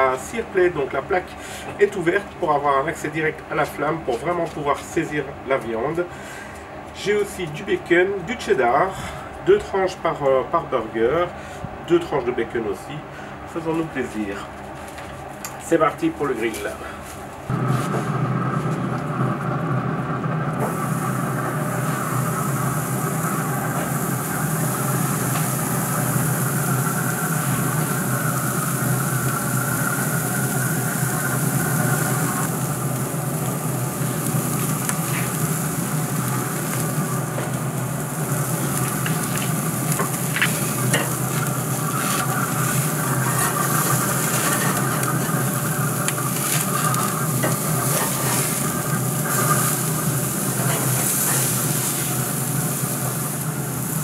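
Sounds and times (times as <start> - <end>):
meat sizzling on grill: 20.6 - 54.0.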